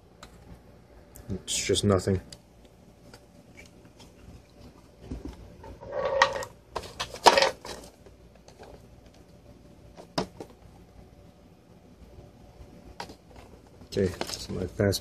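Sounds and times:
handling clicks and rustles: 0:13.0 - 0:14.8.

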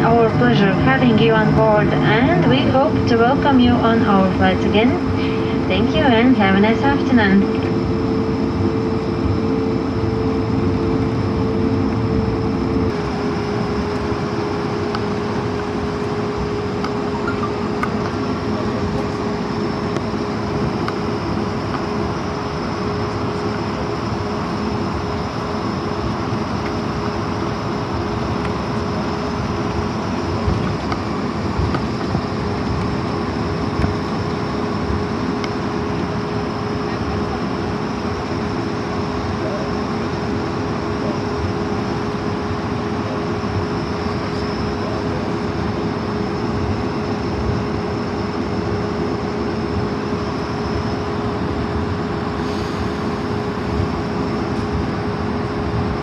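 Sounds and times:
cabin air system: 0:00.0 - 0:22.5, 0:49.7 - 0:56.0
jet engines humming at taxi: 0:00.0 - 0:56.0.

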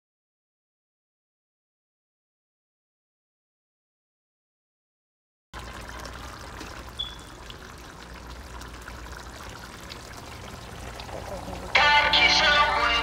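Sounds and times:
pot simmering: 0:05.6 - 0:13.0.

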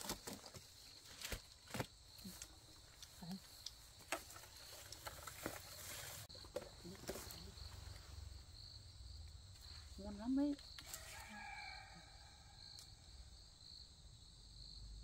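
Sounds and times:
leaves and twigs rustling: 0:00.0 - 0:08.4, 0:09.4 - 0:12.9
insect chirring: 0:00.0 - 0:14.8.

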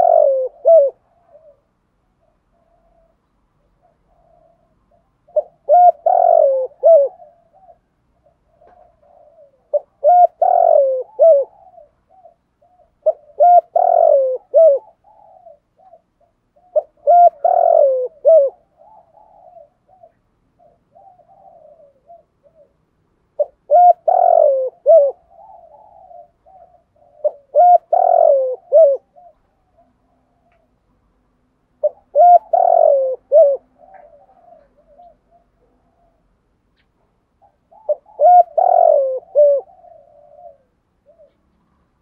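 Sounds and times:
dove cooing: 0:00.0 - 0:31.0, 0:31.8 - 0:42.0.

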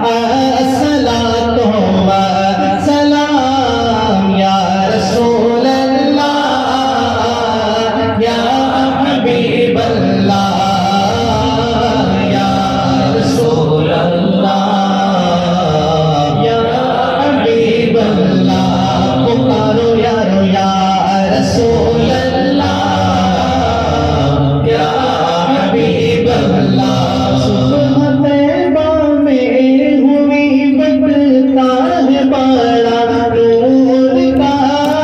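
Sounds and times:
man singing through microphone: 0:00.0 - 0:35.0.

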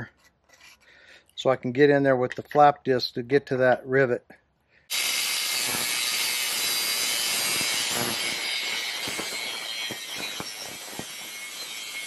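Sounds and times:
angle grinder cutting steel: 0:04.9 - 0:12.0.

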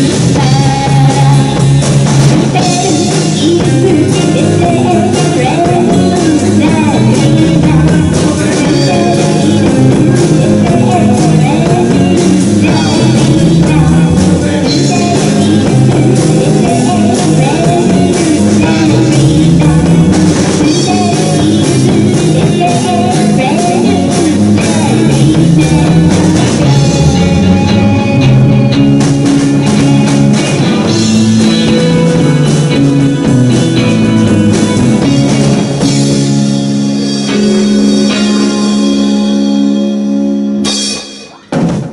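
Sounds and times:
woman singing: 0:00.0 - 0:01.8, 0:02.5 - 0:27.7
rock band playing: 0:00.0 - 0:41.9.

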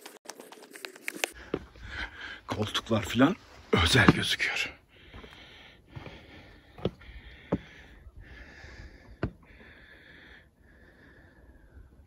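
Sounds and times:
man breathing hard and sniffing: 0:01.3 - 0:02.5, 0:04.8 - 0:12.0.

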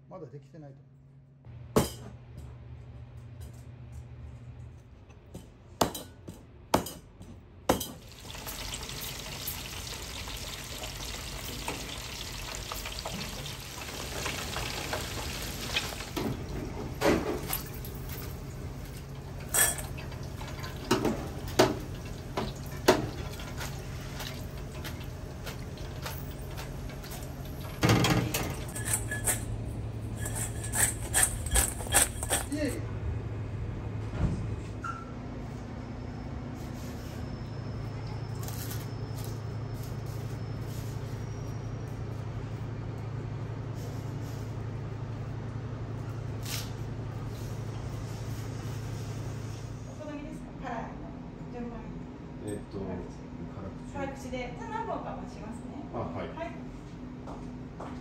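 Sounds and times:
dishes and utensils clinking: 0:19.4 - 0:21.8, 0:26.0 - 0:32.8.

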